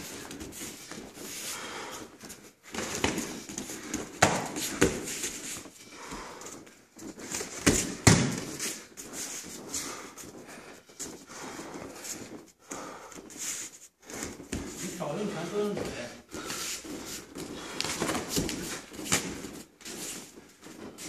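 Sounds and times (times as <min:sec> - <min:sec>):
boxing gloves smacking: 0:02.1 - 0:13.4, 0:16.4 - 0:21.0.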